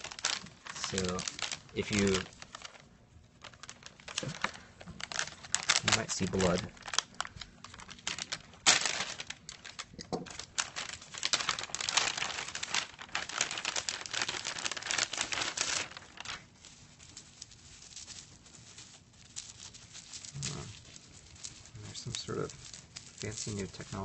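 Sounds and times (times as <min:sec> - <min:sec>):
plastic packaging crinkling: 0:00.0 - 0:24.0.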